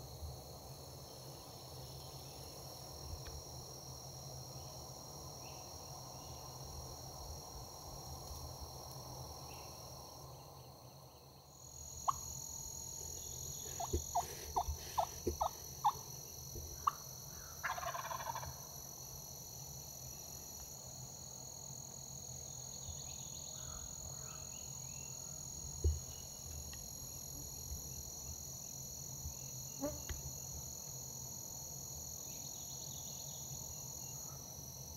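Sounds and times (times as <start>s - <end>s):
insect trill: 0.0s - 34.9s
turkey gobbling: 13.7s - 16.0s, 17.6s - 18.5s.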